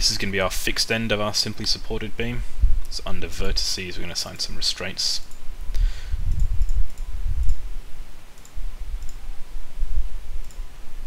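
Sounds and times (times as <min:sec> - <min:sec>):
computer mouse clicks: 0:06.2 - 0:07.6, 0:08.3 - 0:09.2, 0:10.4 - 0:10.6.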